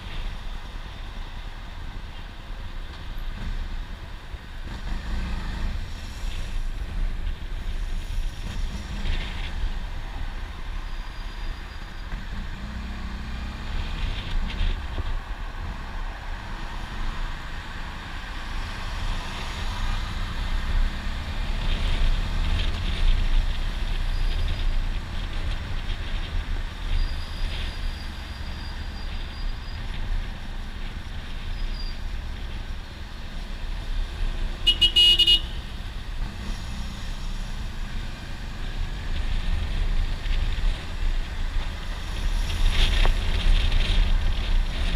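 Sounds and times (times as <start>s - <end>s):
wind rushing over microphone: 11.6s - 34.6s, 35.9s - 44.9s.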